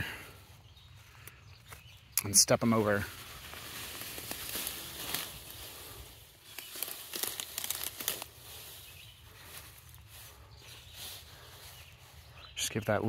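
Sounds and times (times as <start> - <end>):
leaves rustling underfoot: 0.2 - 12.9
plant stems crunching underfoot: 1.0 - 12.3.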